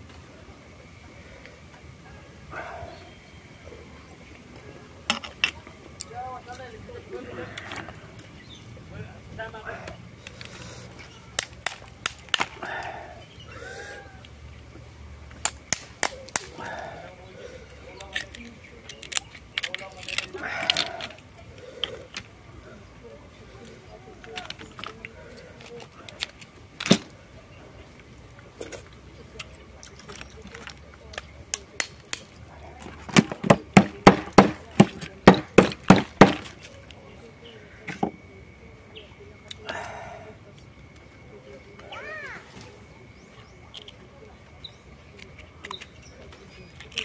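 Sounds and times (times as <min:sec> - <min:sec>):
knife whacking oyster shells: 0:15.4 - 0:16.7, 0:33.1 - 0:36.5
oyster shells clicking together: 0:18.0 - 0:21.2.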